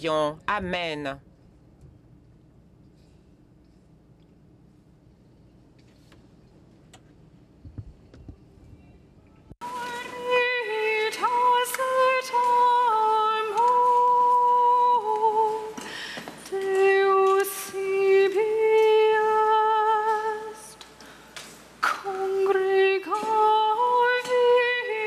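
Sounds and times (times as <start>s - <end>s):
singer breath: 15.8s - 16.4s.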